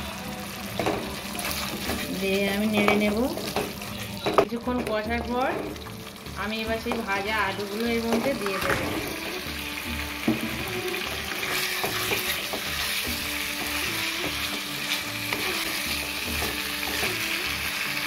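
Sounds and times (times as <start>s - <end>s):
spices sizzling in a wok: 0.0s - 18.0s
wooden spatula scraping and knocking: 10.2s - 17.4s.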